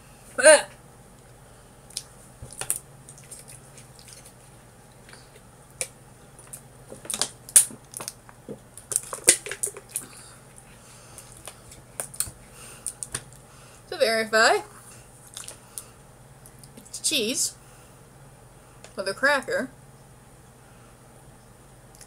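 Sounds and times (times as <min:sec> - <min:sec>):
person eating crackers: 0:01.9 - 0:05.4, 0:08.8 - 0:13.4, 0:15.2 - 0:15.9.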